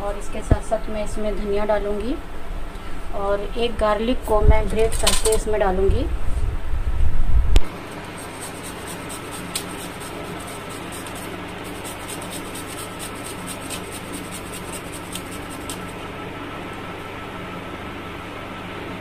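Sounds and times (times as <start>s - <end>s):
garlic scratching on metal grater: 7.8s - 16.0s.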